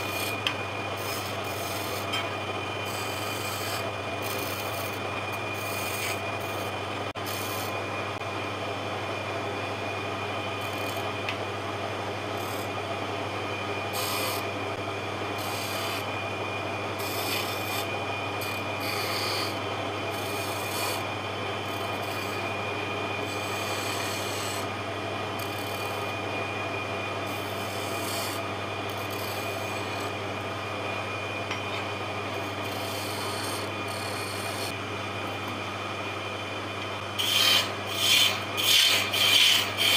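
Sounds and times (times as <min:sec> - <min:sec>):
chisel scraping spinning wood: 0:00.0 - 0:07.8, 0:10.5 - 0:11.4, 0:13.5 - 0:14.6, 0:15.3 - 0:16.2, 0:17.0 - 0:24.7, 0:25.4 - 0:26.2, 0:27.2 - 0:30.2, 0:31.5 - 0:34.8, 0:37.1 - 0:39.9
wood lathe humming: 0:00.0 - 0:08.0, 0:12.1 - 0:24.8, 0:25.4 - 0:35.6, 0:36.8 - 0:39.9.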